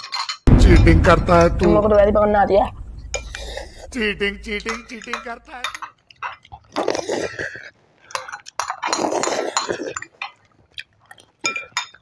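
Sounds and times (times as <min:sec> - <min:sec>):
chopsticks clinking on glass: 0:04.6 - 0:06.6, 0:11.4 - 0:12.0
noodles being slurped: 0:06.3 - 0:11.5.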